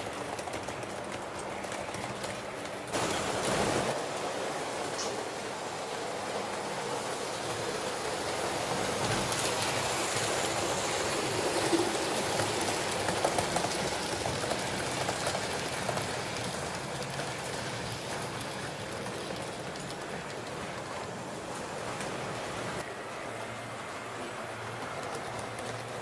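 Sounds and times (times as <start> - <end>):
model train rolling hiss: 2.9 - 26.0.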